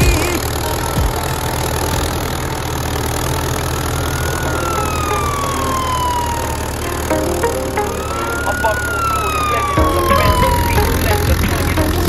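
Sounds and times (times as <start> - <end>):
tractor diesel engine running: 0.0 - 12.0
whistling siren-like tone: 3.7 - 12.0.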